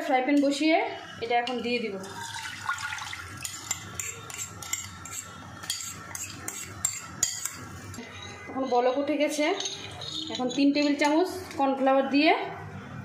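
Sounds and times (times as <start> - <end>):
sauce pouring into a frying pan: 2.0 - 3.4
metal spoon scraping a bowl: 3.4 - 11.2.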